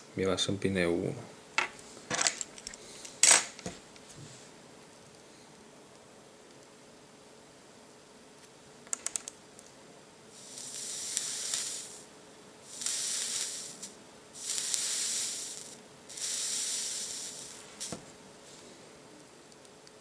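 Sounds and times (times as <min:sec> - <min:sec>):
vape coil sizzling and hissing: 0:10.3 - 0:18.6.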